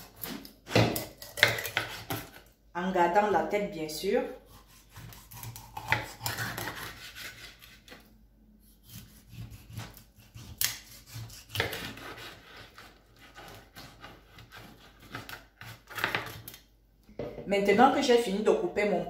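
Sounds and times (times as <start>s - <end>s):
knife sawing through fish: 4.4s - 8.0s, 8.6s - 16.4s.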